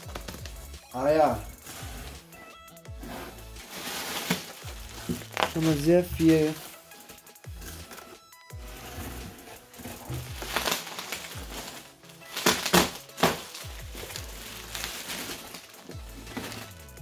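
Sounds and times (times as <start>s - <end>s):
background music with bass notes: 0.0s - 17.0s
plastic packing crinkling: 3.6s - 6.8s, 7.6s - 17.0s.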